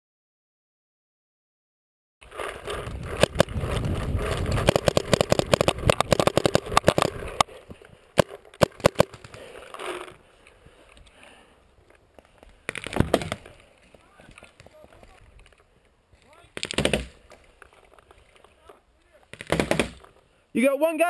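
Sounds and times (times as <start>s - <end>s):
equipment and paintballs rattling: 2.2s - 11.2s, 11.8s - 20.3s
wind rumbling on microphone: 2.6s - 7.4s
sharp clicks: 3.2s - 7.5s.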